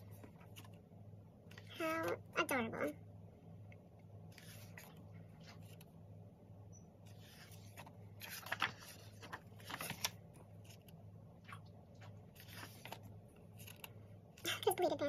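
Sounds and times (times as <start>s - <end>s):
paper pages rustling: 0.0s - 0.8s, 4.3s - 5.9s, 7.0s - 14.5s
low steady hum: 0.0s - 15.0s
page swishes: 7.1s - 10.9s.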